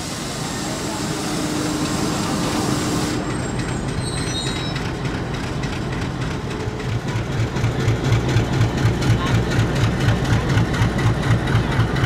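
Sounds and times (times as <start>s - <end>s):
diesel locomotive rumbling: 0.0s - 12.0s.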